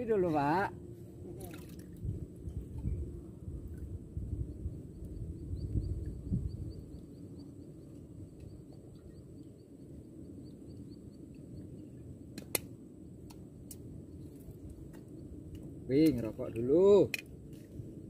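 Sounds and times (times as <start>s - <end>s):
steady low rumble: 0.0s - 18.0s
sharp click: 12.3s - 13.8s.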